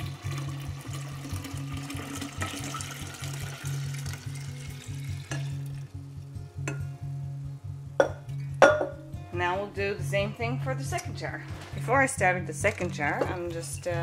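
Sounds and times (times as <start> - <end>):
liquid pouring into glass jar: 0.0 - 5.9
background music: 0.0 - 14.0
glass clinks: 8.0 - 9.0.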